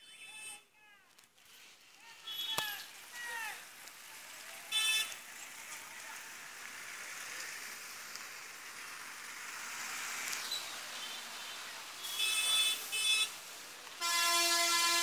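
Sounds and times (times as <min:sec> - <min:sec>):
truck passing: 0:02.8 - 0:15.0.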